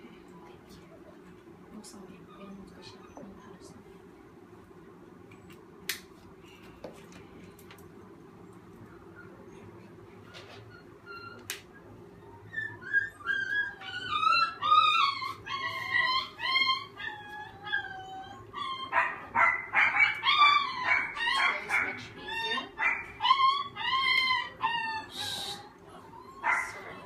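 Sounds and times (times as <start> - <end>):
puppy whining and yelping: 8.5 - 27.0.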